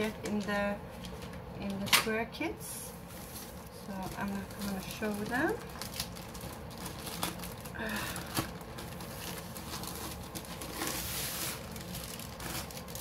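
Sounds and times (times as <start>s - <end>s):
canvas rustling and crinkling: 3.0s - 13.0s.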